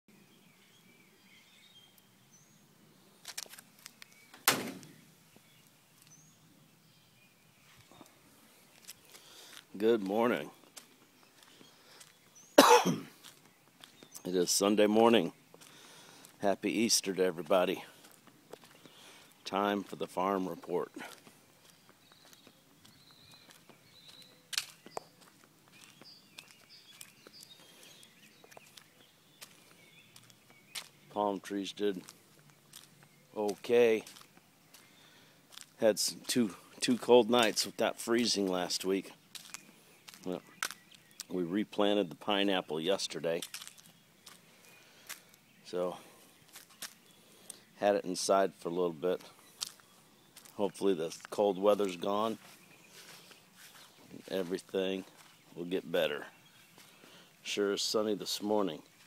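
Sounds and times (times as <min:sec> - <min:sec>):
faint birds chirping: 0:00.1 - 0:59.0
footsteps on grass: 0:03.1 - 0:06.2, 0:07.6 - 0:41.5, 0:42.9 - 0:48.2, 0:49.0 - 0:59.0
sharp knock: 0:04.4 - 0:04.9.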